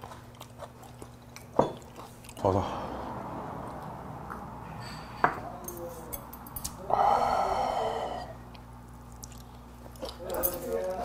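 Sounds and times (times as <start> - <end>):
person exhaling loudly: 6.8 - 8.4.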